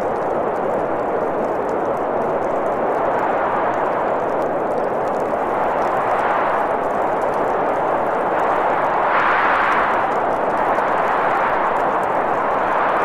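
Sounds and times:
blizzard wind blowing: 0:00.0 - 0:13.0.

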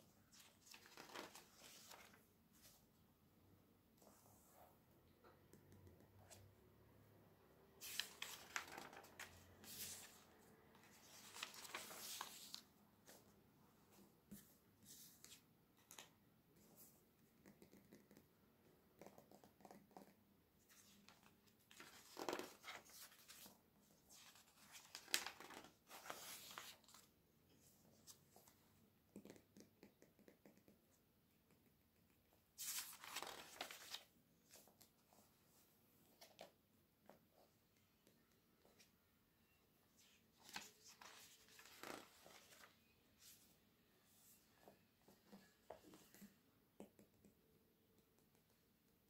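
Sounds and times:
page turns: 0:00.3 - 0:02.8, 0:07.8 - 0:10.2, 0:10.8 - 0:12.6, 0:20.7 - 0:23.5, 0:24.1 - 0:27.1, 0:32.6 - 0:34.8, 0:40.0 - 0:43.4
paper pages rustling: 0:00.3 - 0:02.8, 0:07.8 - 0:10.2, 0:10.8 - 0:13.2, 0:20.7 - 0:23.5, 0:24.1 - 0:27.1, 0:32.6 - 0:34.8, 0:40.0 - 0:43.5.

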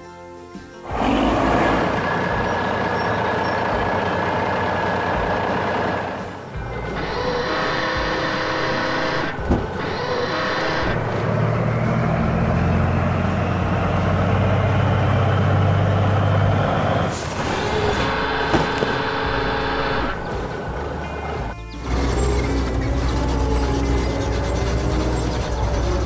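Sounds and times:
heavy truck engine running: 0:00.8 - 0:26.0
air brake hiss: 0:17.1 - 0:19.8.

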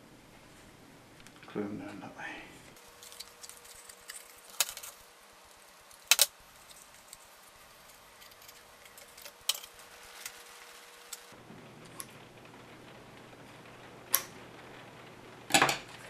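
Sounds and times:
card clicking and rustling: 0:02.8 - 0:10.5.

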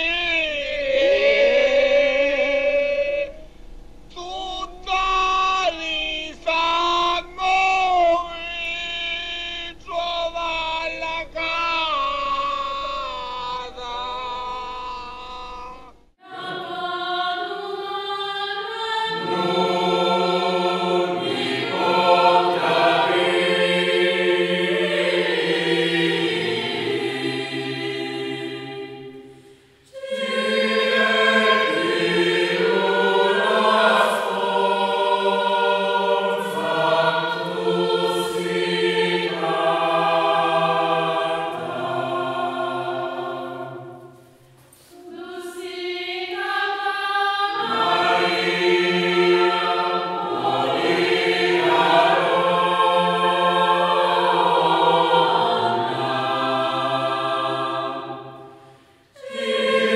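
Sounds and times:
choir singing a hymn: 0:00.0 - 0:03.5, 0:16.2 - 0:59.9.

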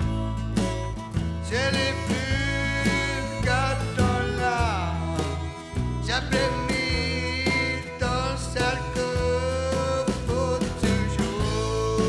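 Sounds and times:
guitar bass and steady beat: 0:00.0 - 0:12.0
person singing: 0:01.4 - 0:12.0.

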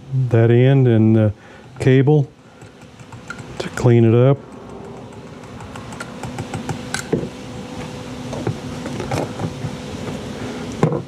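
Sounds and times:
faint steady hum: 0:00.0 - 0:11.0
sharp ticks: 0:02.6 - 0:03.7, 0:04.4 - 0:07.1
small parts clicking and scraping: 0:02.6 - 0:03.8, 0:04.5 - 0:07.2.

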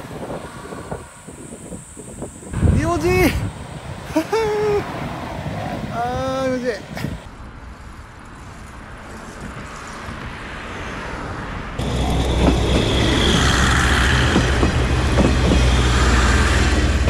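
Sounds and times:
rush of passing air: 0:00.0 - 0:07.6
train engine drone: 0:11.0 - 0:17.0
train wheels clattering over rail joints: 0:11.8 - 0:17.0.

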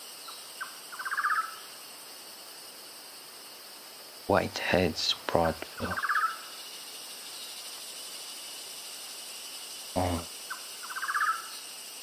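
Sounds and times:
high insect drone: 0:00.0 - 0:12.0
bird pulsing trill: 0:00.2 - 0:01.7, 0:05.8 - 0:12.0.

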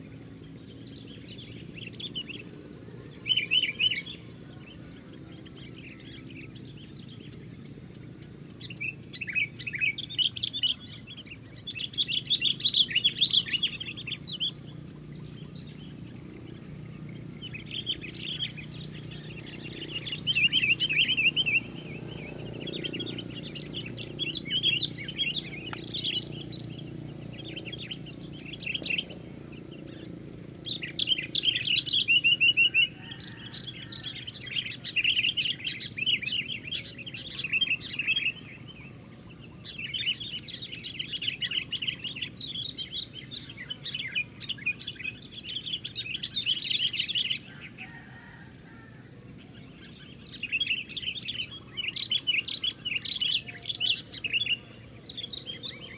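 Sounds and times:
bird singing chattering phrases: 0:05.4 - 0:32.9.

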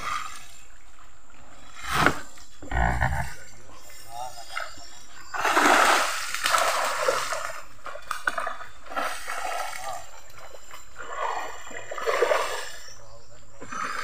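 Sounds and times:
water splashing and dripping: 0:05.3 - 0:12.7.

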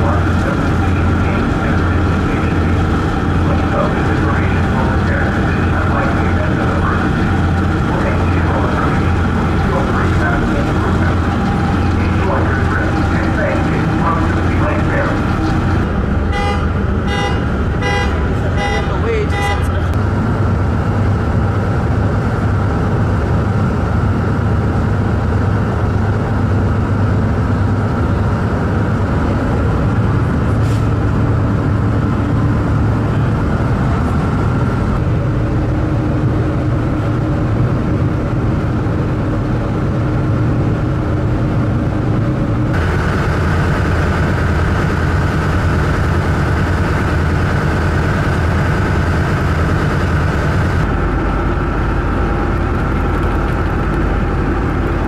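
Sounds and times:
ship engines droning: 0:00.0 - 0:55.0.

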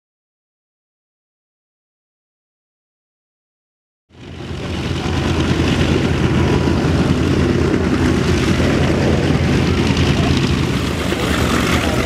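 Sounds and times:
propeller plane engines droning: 0:04.1 - 0:12.0.

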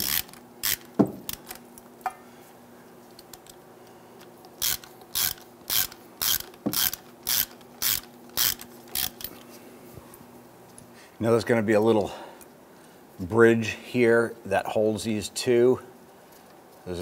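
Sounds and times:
hand ratchet clicking: 0:00.0 - 0:01.6, 0:04.6 - 0:09.4.

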